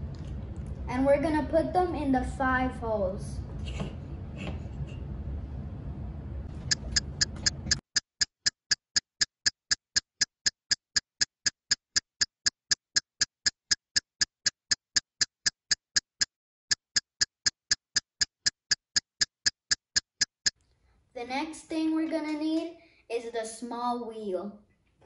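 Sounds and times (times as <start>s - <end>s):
clock ticking: 6.7s - 20.6s.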